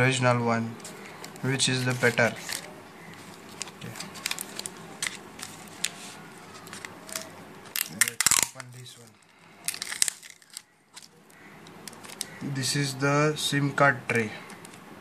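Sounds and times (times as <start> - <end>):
plastic packaging crinkling: 1.0 - 12.4.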